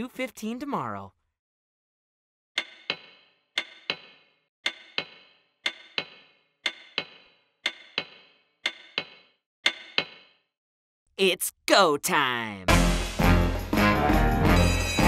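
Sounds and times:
wall clock ticking: 0:04.6 - 0:09.1.

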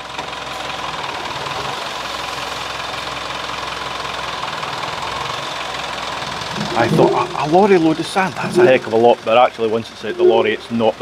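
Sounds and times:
lorry engine running: 0:04.7 - 0:10.7.

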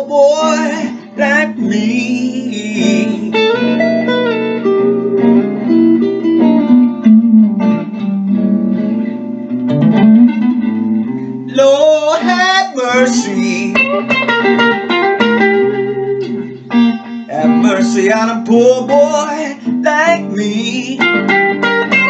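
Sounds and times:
person singing: 0:00.0 - 0:03.8, 0:11.5 - 0:14.4, 0:16.2 - 0:22.0
electric guitar blues lead: 0:00.0 - 0:22.0.

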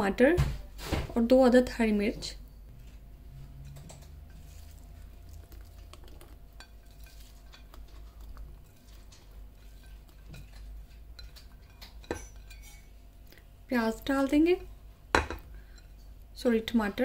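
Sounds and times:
utensils and dishes clinking: 0:02.8 - 0:13.4.

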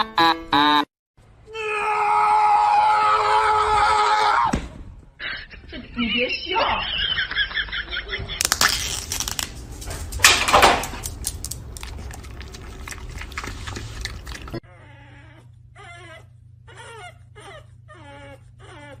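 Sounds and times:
plastic packaging crinkling: 0:08.4 - 0:12.4
dog whining: 0:13.8 - 0:19.0.

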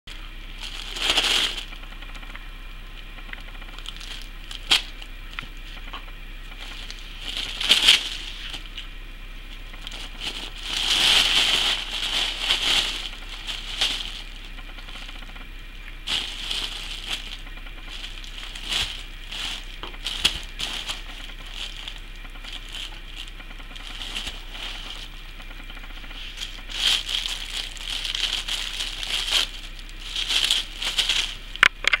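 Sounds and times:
tissue paper crinkling: 0:00.1 - 0:01.9, 0:03.7 - 0:08.8, 0:09.4 - 0:31.6.

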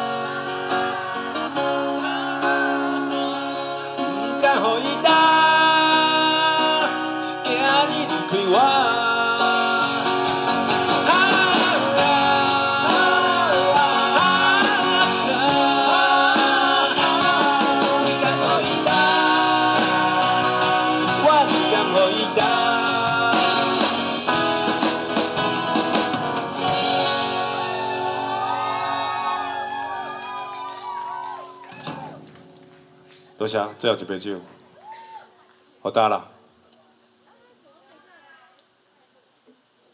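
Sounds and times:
man singing: 0:00.0 - 0:24.8
acoustic guitars: 0:00.0 - 0:34.9.

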